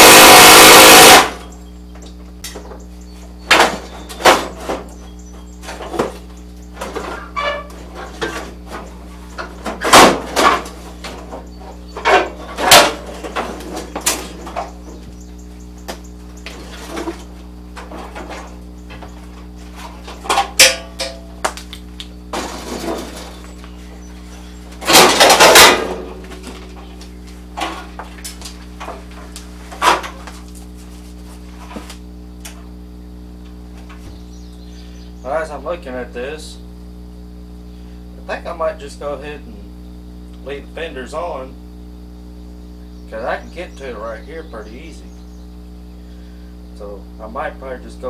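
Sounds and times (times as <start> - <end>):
steady low hum: 0.0 - 48.0
metal clanks: 20.1 - 21.3
loud metal rattling: 24.8 - 26.1.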